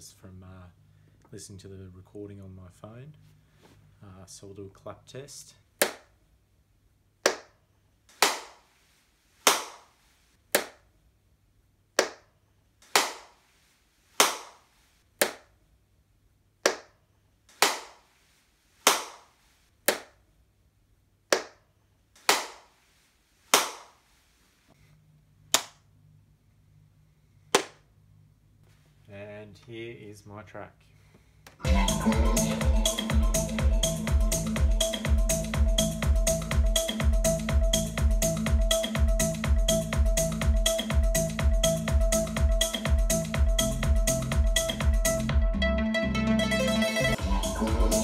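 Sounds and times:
dry hand claps: 7.3s - 7.5s, 8.1s - 8.6s, 9.5s - 9.9s, 12.9s - 13.3s, 14.2s - 14.6s, 16.6s - 16.9s, 17.6s - 18.0s, 18.9s - 19.3s, 22.2s - 22.7s, 23.5s - 23.9s, 27.6s - 27.8s.

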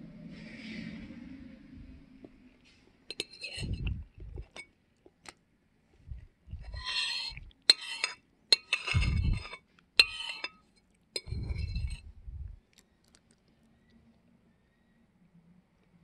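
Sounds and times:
low dull rumbling: 0.0s - 2.6s, 3.6s - 4.5s, 11.3s - 12.6s
fork scraping and clinking on plate: 3.1s - 4.7s, 6.6s - 12.1s.

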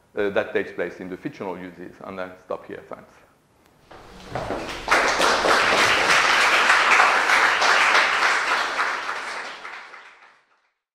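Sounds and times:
audience applauding: 3.9s - 10.7s.

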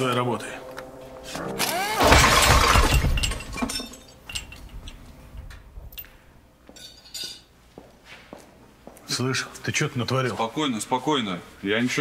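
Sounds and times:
loud metallic crash: 1.6s - 4.5s
metal parts clinking: 1.7s - 5.1s.

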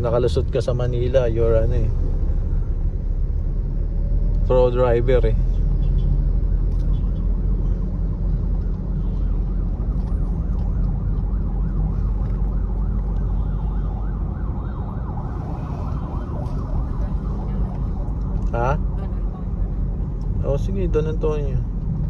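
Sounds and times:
car engine and tyres rumbling: 0.0s - 22.0s
siren wailing: 6.3s - 19.6s.

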